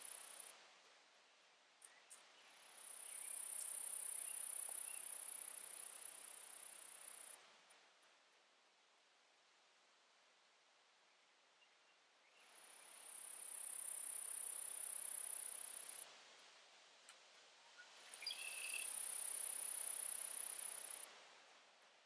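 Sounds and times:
high-pitched insect buzz: 0.0s - 0.5s, 2.9s - 7.4s, 12.9s - 16.0s, 18.2s - 21.1s.

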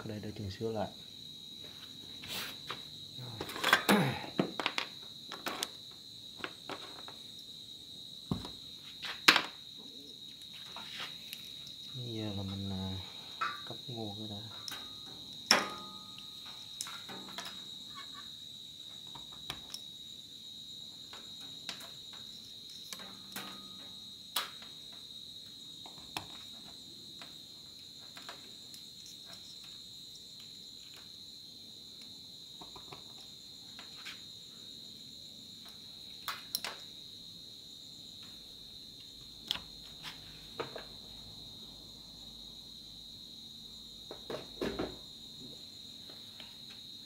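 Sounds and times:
insects chirring: 0.0s - 47.0s
small clicks and knocks: 3.4s - 5.8s, 14.5s - 18.2s, 19.0s - 19.9s, 21.0s - 25.1s, 25.8s - 29.8s, 35.6s - 36.9s.

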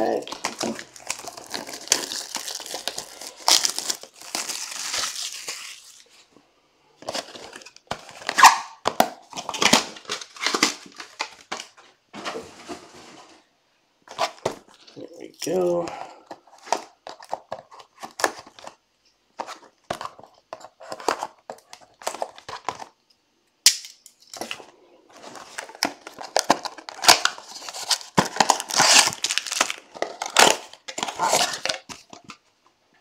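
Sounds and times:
card packs rustling: 0.0s - 6.2s, 7.0s - 13.4s, 14.0s - 23.0s, 24.4s - 32.5s
plastic wrap crinkling and tearing: 0.0s - 6.2s, 7.0s - 11.8s, 24.3s - 32.4s.

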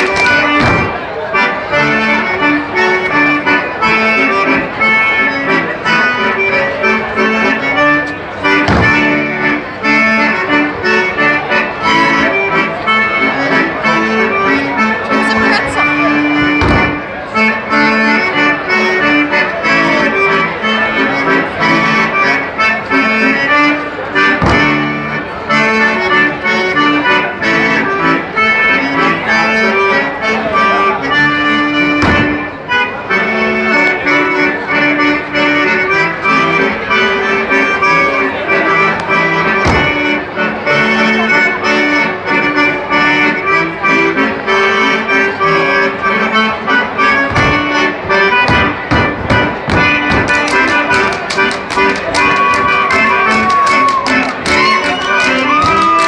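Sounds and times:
accordion folk dance music: 0.0s - 56.0s
sharp knock: 0.2s - 1.0s, 8.6s - 9.2s, 16.6s - 17.0s, 24.4s - 24.8s, 32.0s - 32.4s, 39.6s - 40.0s, 47.3s - 47.7s, 48.4s - 50.5s.

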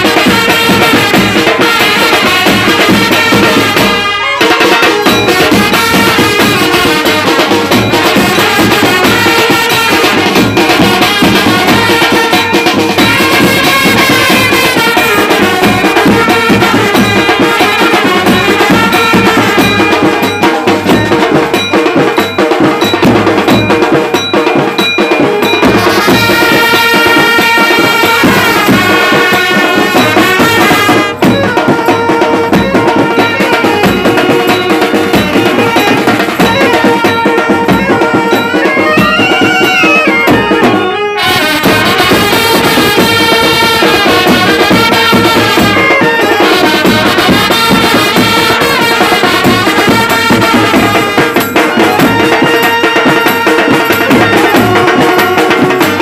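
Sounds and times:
trumpets playing melody: 0.0s - 23.5s, 25.3s - 56.0s
side drums and bass drum: 0.0s - 56.0s.

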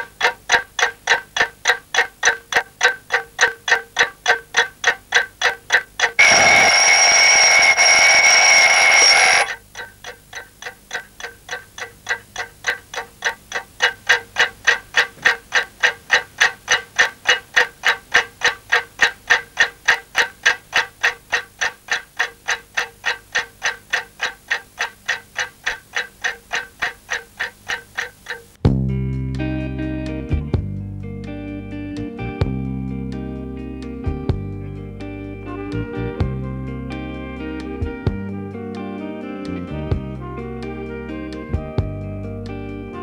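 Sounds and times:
clock ticking: 0.0s - 28.6s
alarm clock bell ringing: 6.2s - 9.6s
guitar music: 28.9s - 43.0s.

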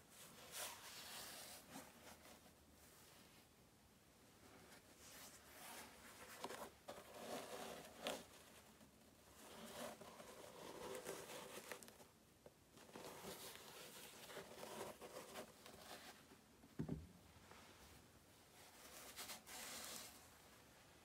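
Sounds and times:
shoe thump on table: 16.8s - 17.2s.

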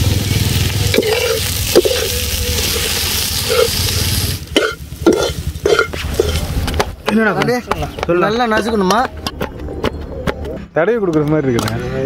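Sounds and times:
vegetables sizzling in pan: 0.0s - 6.7s
spoon scraping metal pan: 0.9s - 6.5s.

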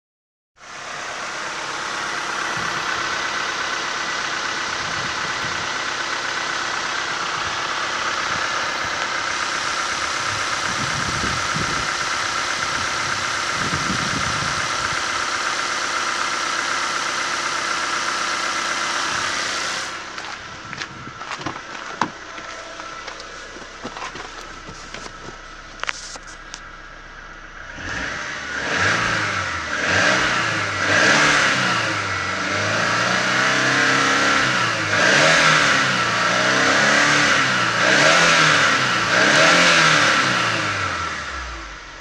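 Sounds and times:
steady high whine: 0.6s - 30.9s
car engine idling: 0.6s - 42.0s.

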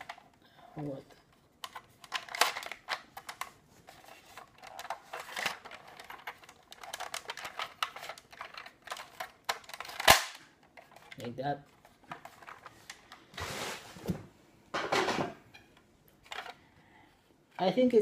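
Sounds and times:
plastic toy clicks and rattles: 4.3s - 11.3s.

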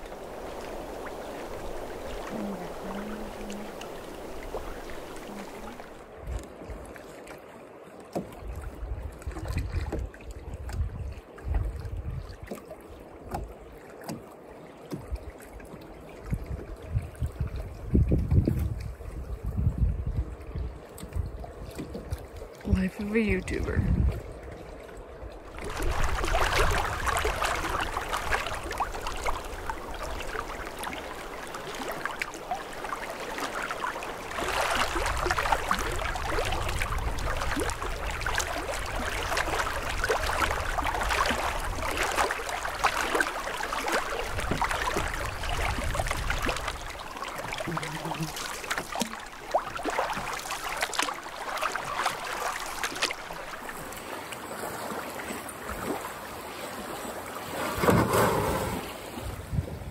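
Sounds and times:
wind rumble on microphone: 0.0s - 7.0s, 8.3s - 13.6s, 16.1s - 32.5s, 34.1s - 48.4s, 57.8s - 59.9s
lake water lapping and splashing: 0.0s - 59.9s.

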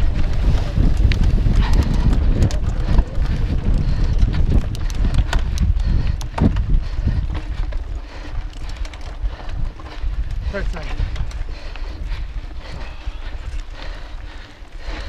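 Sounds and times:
bike frame clicks and knocks: 0.0s - 10.4s
wind on microphone: 0.0s - 15.0s.

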